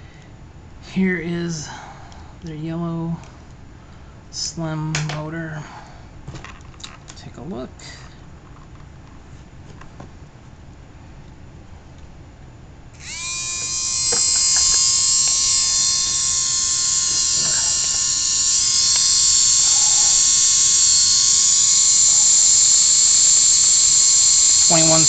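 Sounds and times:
small electric motor whine: 13.0s - 25.0s.

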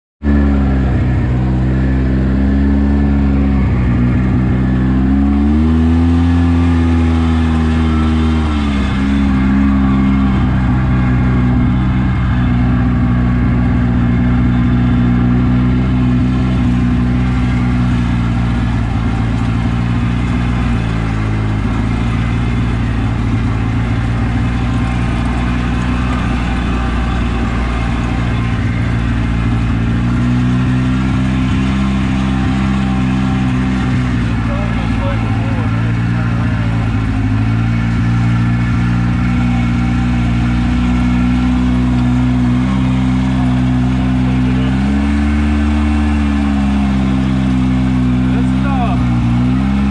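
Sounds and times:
off-road vehicle engine revving: 0.2s - 49.9s.

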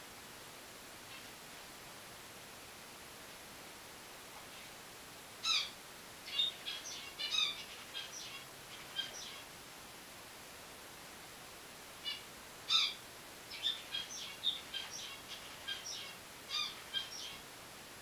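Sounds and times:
finches chirping: 5.4s - 9.5s, 12.0s - 17.4s.

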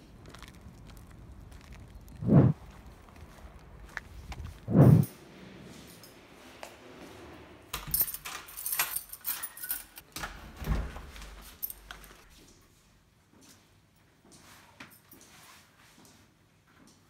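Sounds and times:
keys jangling: 7.8s - 10.1s.

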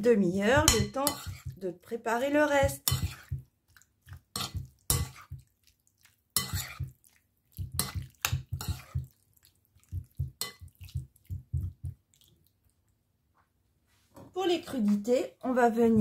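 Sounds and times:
wet meat being turned: 0.0s - 12.9s
spoon scraping and clinking bowl: 0.6s - 1.6s, 2.7s - 3.4s, 4.3s - 5.4s, 6.4s - 6.9s, 7.6s - 9.1s, 10.4s - 11.0s.

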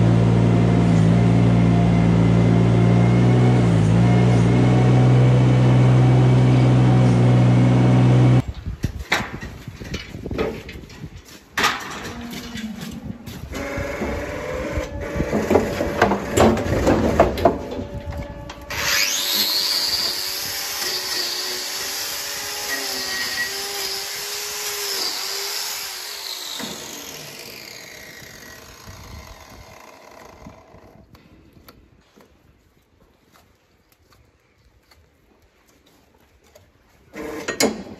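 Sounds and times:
angle grinder whining: 0.0s - 8.4s, 13.5s - 31.1s
clattering knocks: 15.2s - 18.6s.

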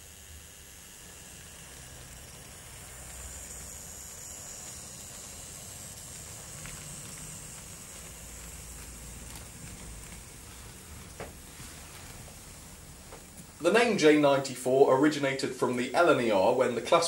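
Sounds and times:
model train running on track: 0.0s - 10.7s.

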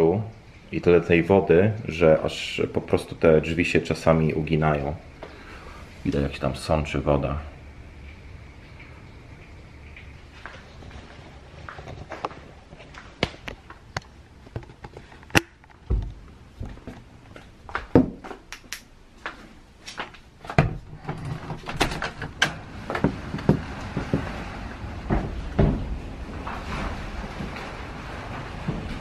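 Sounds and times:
rain: 0.0s - 17.8s, 21.2s - 29.0s
hurricane wind: 20.9s - 29.0s
heavy door-like thuds: 23.0s - 27.0s.

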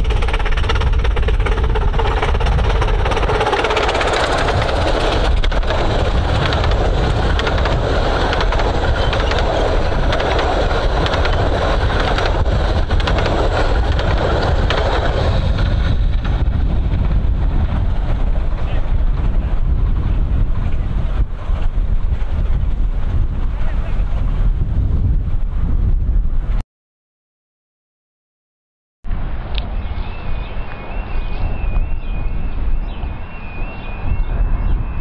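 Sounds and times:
wheels clattering on rail: 0.0s - 24.2s
miniature train rumbling: 0.0s - 25.5s.

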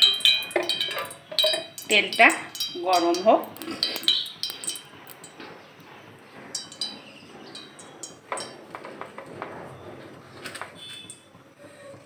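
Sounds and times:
metallic kitchenware clinks: 0.0s - 5.4s, 6.6s - 8.6s.

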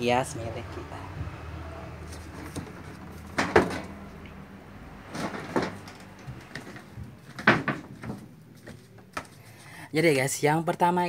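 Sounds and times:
clattering knocks: 2.2s - 4.0s, 5.0s - 8.8s.

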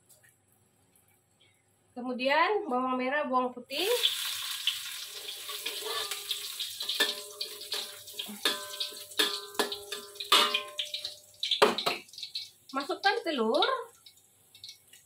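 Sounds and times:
food sizzling in a wok: 3.7s - 15.0s
metal spatula scraping a wok: 5.2s - 11.0s.

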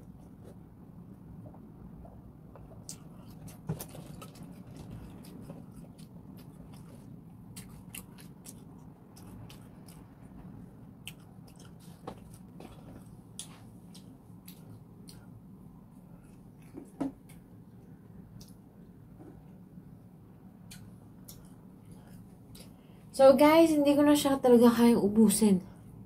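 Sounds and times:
person chewing wetly: 2.0s - 19.0s, 20.6s - 22.8s.

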